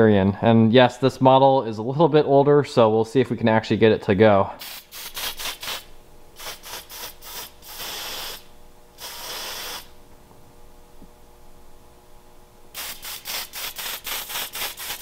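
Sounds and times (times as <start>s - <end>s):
aerosol spray hissing: 4.6s - 9.9s, 12.8s - 15.0s.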